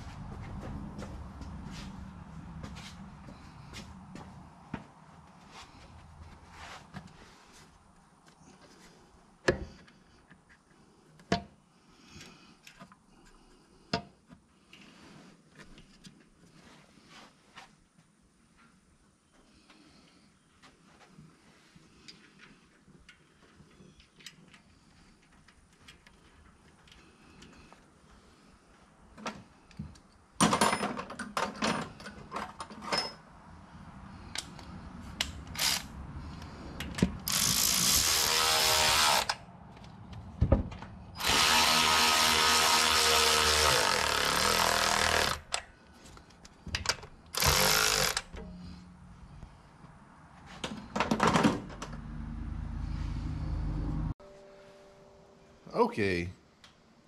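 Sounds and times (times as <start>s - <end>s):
handheld power tool running: 35.6s - 35.9s, 37.3s - 39.4s, 41.2s - 45.6s, 47.3s - 48.3s.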